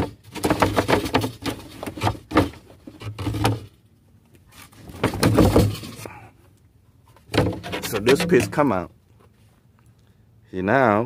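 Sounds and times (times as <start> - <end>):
wooden panel knocks and scrapes: 0.0 - 3.7, 4.8 - 6.0, 7.2 - 8.7.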